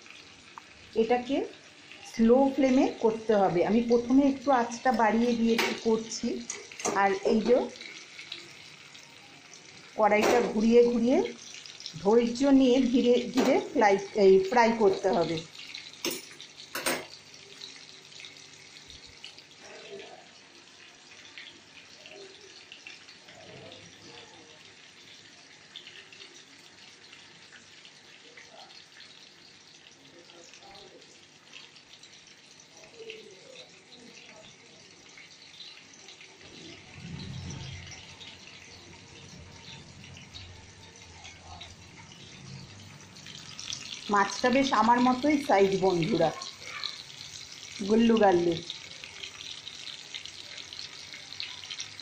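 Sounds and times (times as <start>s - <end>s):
fish sizzling in oil: 0.0s - 52.0s
low rumble: 36.7s - 40.3s.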